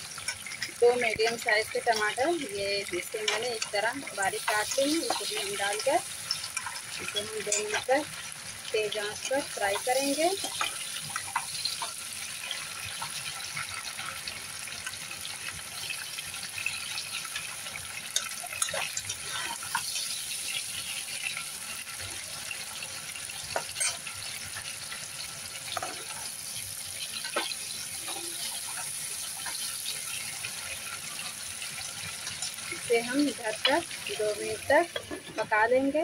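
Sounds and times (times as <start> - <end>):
food sizzling in hot oil: 0.0 - 36.0
spatula tapping and scraping pan: 0.2 - 8.2, 25.6 - 26.2.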